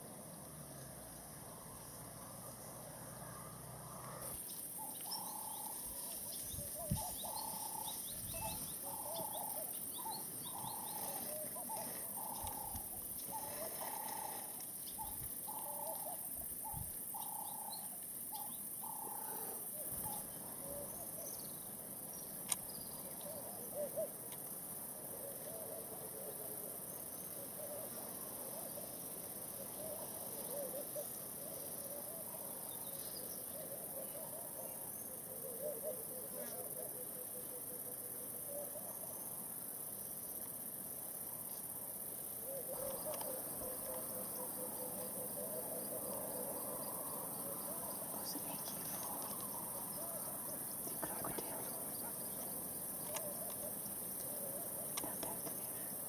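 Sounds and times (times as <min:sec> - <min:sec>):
high insect hiss: 0:00.0 - 0:56.0
birds trilling softly: 0:00.4 - 0:56.0.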